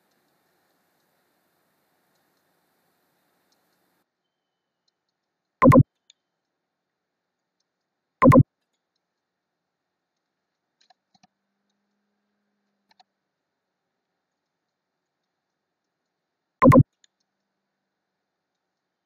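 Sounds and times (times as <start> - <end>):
faint clicks: 0.0 - 9.4, 10.0 - 13.2, 14.1 - 17.8, 18.4 - 19.0
computer mouse clicks: 4.8 - 6.6, 7.4 - 9.2, 12.8 - 13.1, 14.3 - 17.5.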